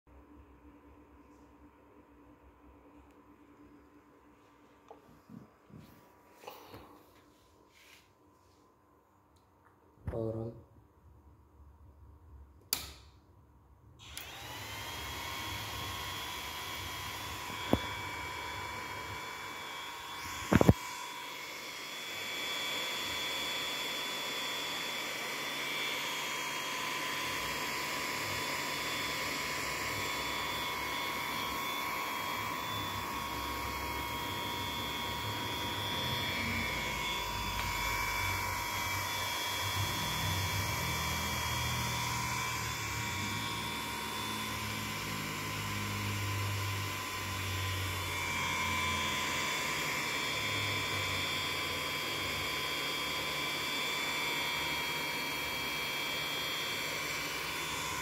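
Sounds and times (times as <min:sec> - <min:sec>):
cooling fan whine: 0:14.1 - 0:58.0.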